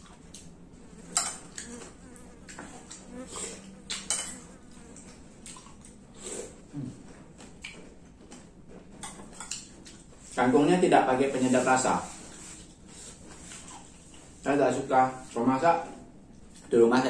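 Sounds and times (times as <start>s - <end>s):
faint steady hum: 0.0s - 17.0s
chewing and lip-smacking: 1.4s - 10.2s
metal spoon scraping plates: 4.0s - 4.6s.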